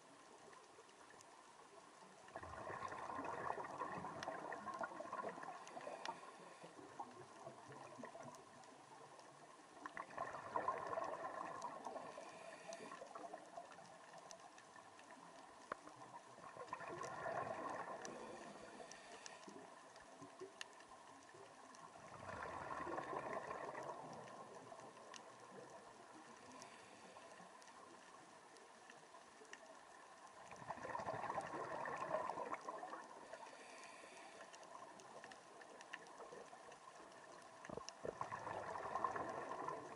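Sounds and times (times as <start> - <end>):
faint clicks: 0.0 - 39.9
regulator bubbling underwater: 2.3 - 8.4, 9.9 - 12.2, 16.3 - 18.7, 21.9 - 25.8, 30.5 - 33.4, 37.7 - 39.9.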